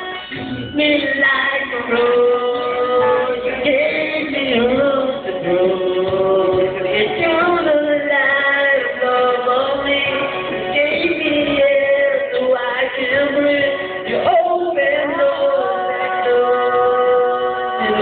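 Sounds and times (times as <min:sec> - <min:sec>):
backing music: 0:00.0 - 0:18.0
person singing into a microphone: 0:00.0 - 0:18.0.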